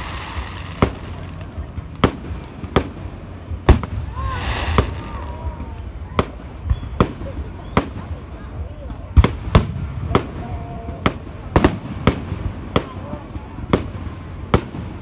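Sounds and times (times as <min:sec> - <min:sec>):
fireworks shells bursting: 0:00.0 - 0:08.2.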